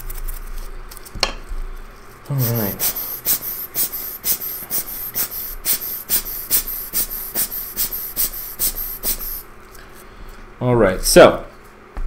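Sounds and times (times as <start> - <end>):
scratchy scrubbing strokes: 2.3 - 9.4.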